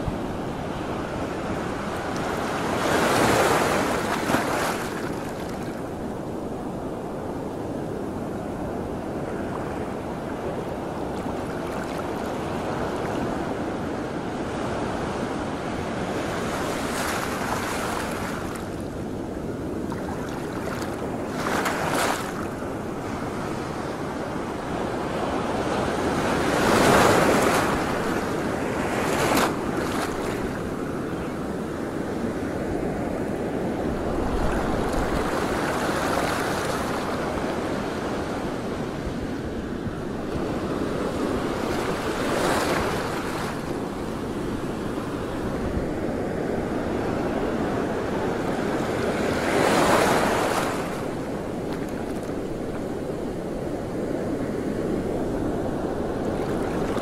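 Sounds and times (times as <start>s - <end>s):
sea water splashing: 2.3s - 5.7s, 19.8s - 22.5s
wind noise on microphone: 12.3s - 57.0s.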